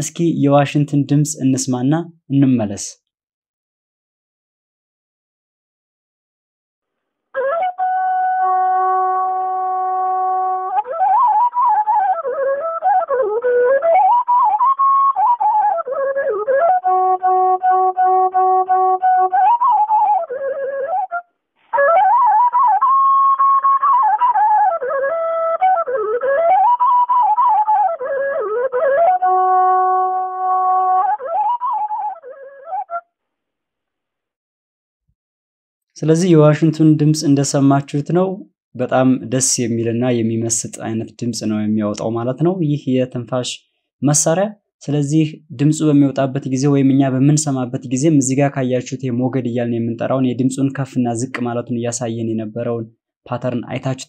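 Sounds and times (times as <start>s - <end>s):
bamboo flute melody: 7.4s - 33.1s.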